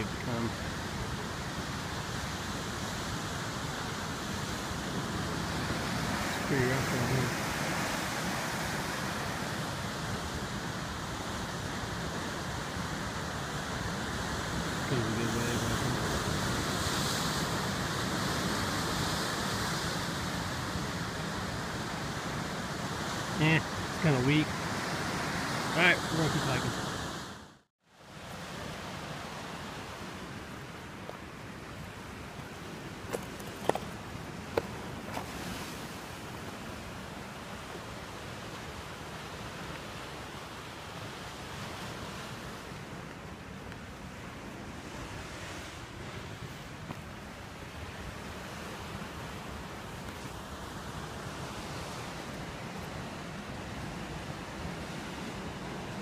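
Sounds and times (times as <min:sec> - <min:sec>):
ocean surf breaking on rocks: 0:00.0 - 0:27.4, 0:28.0 - 0:56.0
surf breaking over rocks: 0:04.4 - 0:09.9
footsteps on loose stones: 0:33.0 - 0:35.4.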